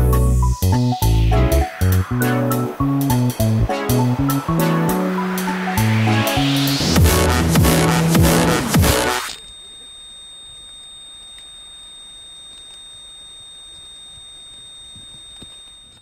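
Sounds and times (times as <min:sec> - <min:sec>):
dubstep music: 0:00.0 - 0:09.4
high-pitched whine: 0:00.0 - 0:09.6.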